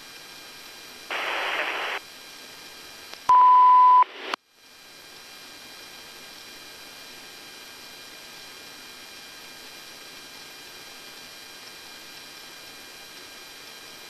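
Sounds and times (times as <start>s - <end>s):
radio channel hiss: 0.9s - 8.5s
radio static burst: 1.1s - 2.0s, 3.6s - 4.4s
high-pitched beep: 3.3s - 4.1s.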